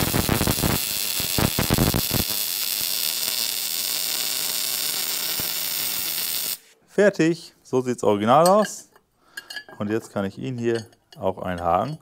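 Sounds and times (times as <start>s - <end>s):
arc welding crackling hiss: 0.0s - 6.7s.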